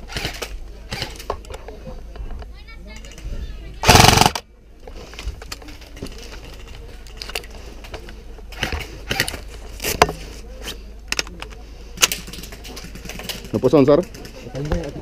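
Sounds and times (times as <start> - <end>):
footsteps and gear clicks: 4.1 - 10.4, 11.1 - 15.0.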